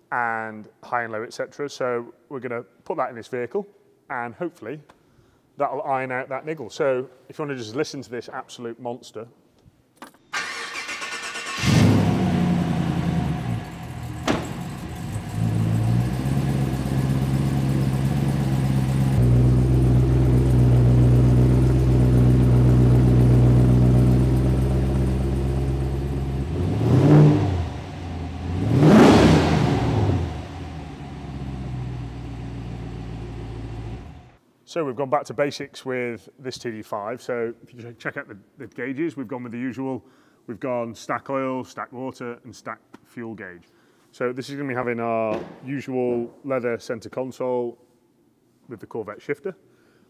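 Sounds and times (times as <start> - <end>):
engine starting and idling: 10.4 - 20.7
engine revving: 10.4 - 34.4.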